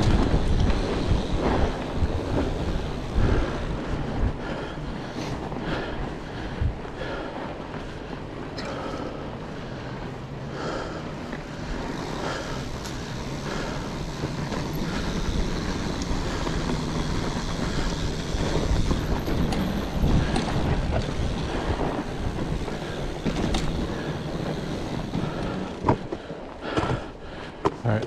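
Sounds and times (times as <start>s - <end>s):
bike clicks and knocks: 0.0s - 3.5s, 10.9s - 28.0s
bike riding rumble: 0.0s - 28.0s
wind buffeting microphone: 0.0s - 28.0s.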